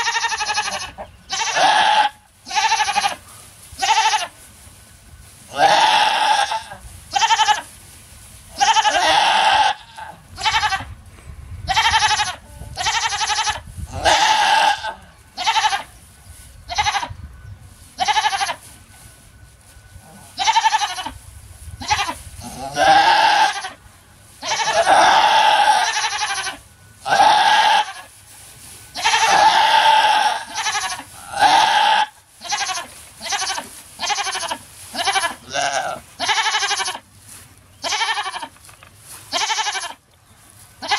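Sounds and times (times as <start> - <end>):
goat bleating loudly: 0.0 - 3.2, 3.8 - 4.3, 5.5 - 7.7, 8.6 - 10.9, 11.7 - 15.9, 16.7 - 17.1, 18.0 - 18.6, 20.3 - 21.2, 21.8 - 23.8, 24.4 - 28.1, 29.0 - 37.0, 37.8 - 38.6, 39.3 - 40.0.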